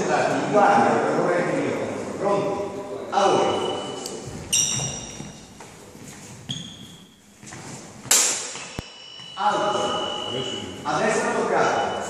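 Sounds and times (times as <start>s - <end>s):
steel swords clashing: 4.5s - 5.2s.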